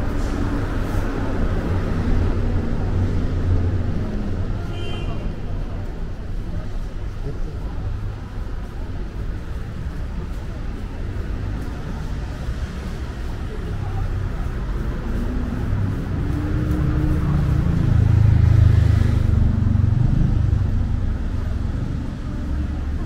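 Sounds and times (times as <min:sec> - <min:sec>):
vehicle engine passing: 0:11.3 - 0:23.0.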